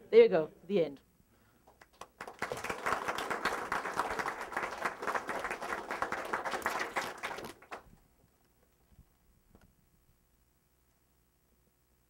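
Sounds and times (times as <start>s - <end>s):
audience applauding: 1.7s - 7.9s.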